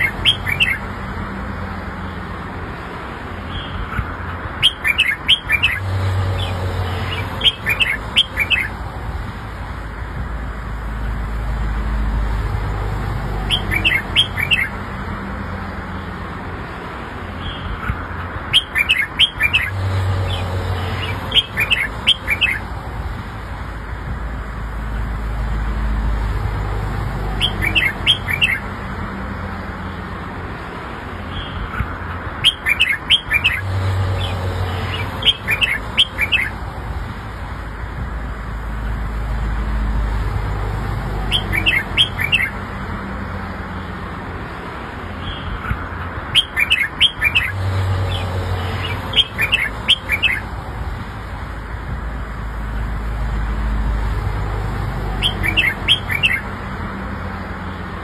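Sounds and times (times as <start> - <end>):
bulbul singing chirpy whistles: 7.3 - 8.7, 27.4 - 28.6, 48.8 - 50.4, 55.2 - 56.4.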